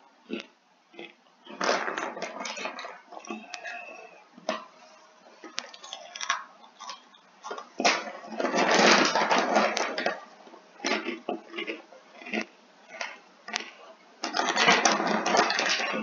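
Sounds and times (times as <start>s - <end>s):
person chewing crunchy snack: 0.3s - 4.7s, 5.4s - 10.2s, 10.8s - 16.0s.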